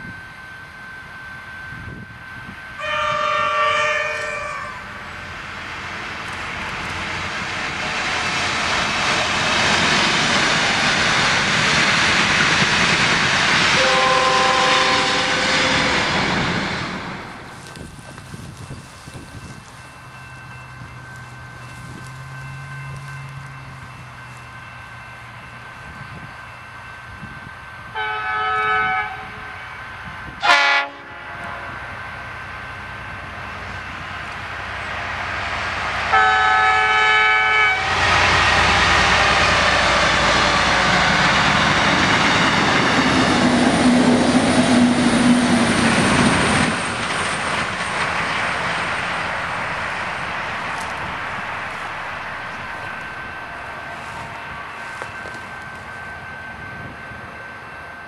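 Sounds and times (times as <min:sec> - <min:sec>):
train passing: 0:00.0 - 0:58.0
locomotive horn: 0:02.8 - 0:05.0, 0:13.7 - 0:16.2, 0:27.9 - 0:29.7, 0:30.4 - 0:32.0, 0:36.1 - 0:41.2.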